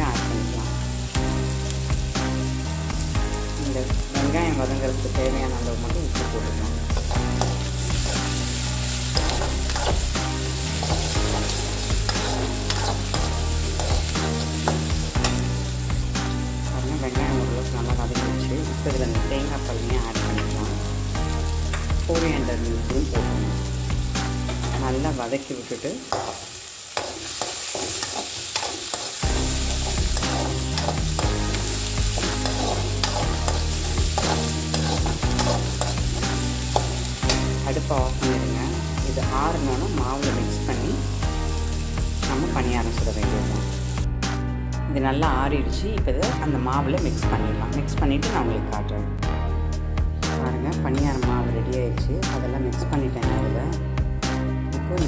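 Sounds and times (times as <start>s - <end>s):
onions sizzling in oil: 0.0s - 44.1s
metal spoon scraping a pan: 6.9s - 15.4s, 26.1s - 37.5s.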